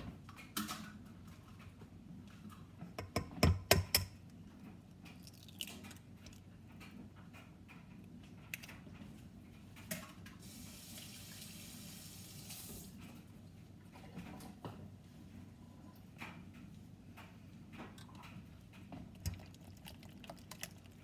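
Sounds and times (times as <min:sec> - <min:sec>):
egg tapping on steel bowl: 0:03.0 - 0:04.2
kitchen tap running: 0:10.4 - 0:13.0, 0:19.0 - 0:21.0.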